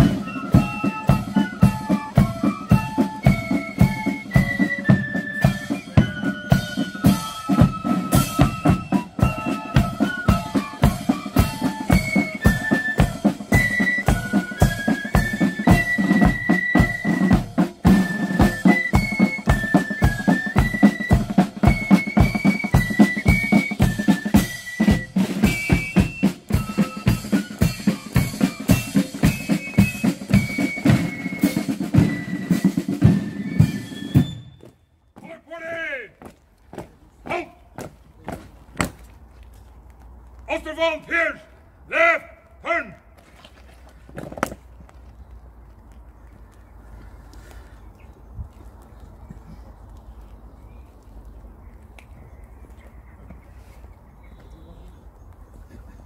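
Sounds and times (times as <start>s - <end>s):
side drums: 0.0s - 34.7s
flutes playing march tune: 0.0s - 36.3s.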